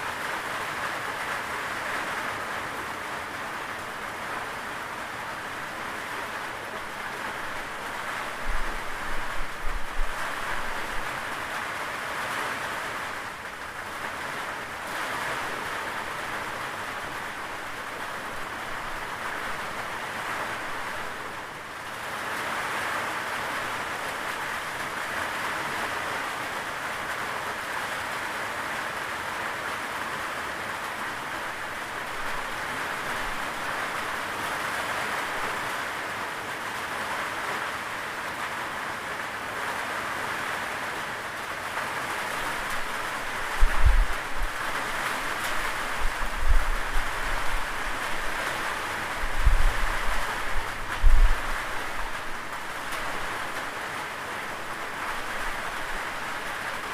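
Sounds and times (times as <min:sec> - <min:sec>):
steady rain hiss: 0:00.0 - 0:56.9.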